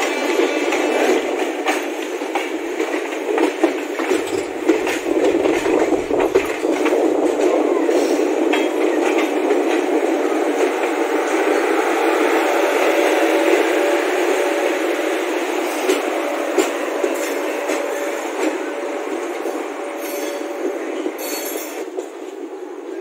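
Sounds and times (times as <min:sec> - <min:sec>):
train wheels rumbling on rails: 0:00.0 - 0:23.0
wheels clattering over rail joints: 0:01.4 - 0:07.3.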